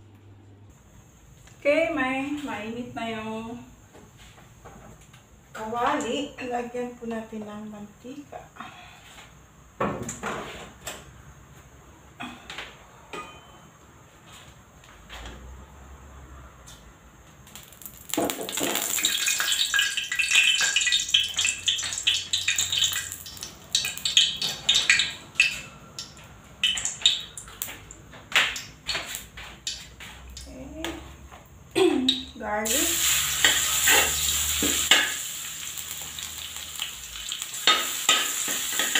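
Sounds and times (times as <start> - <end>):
dishes and utensils clattering: 13.1 - 13.7, 37.6 - 38.9
dense crackling hiss: 17.4 - 30.5, 32.6 - 38.9.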